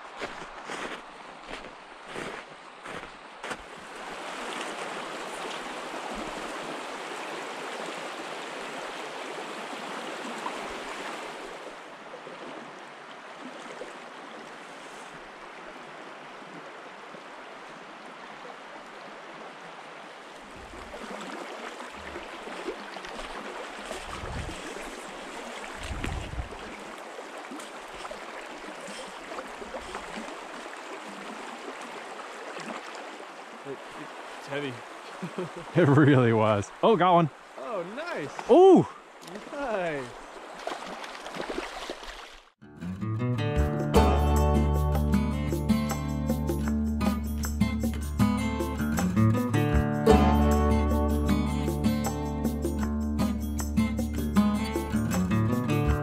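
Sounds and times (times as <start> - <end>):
stream flowing over rocks: 0.0 - 42.6.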